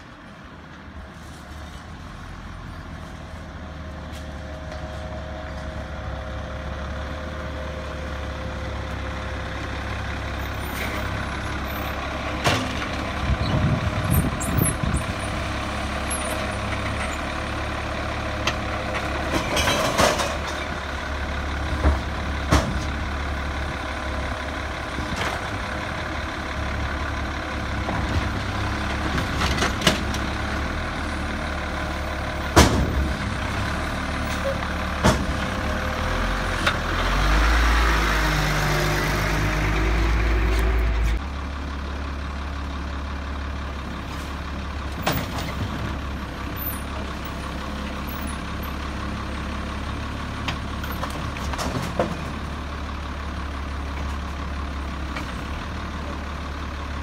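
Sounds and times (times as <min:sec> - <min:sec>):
garbage truck engine running: 0:03.8 - 0:57.0
knocks and clatter: 0:19.0 - 0:20.7, 0:50.5 - 0:52.4.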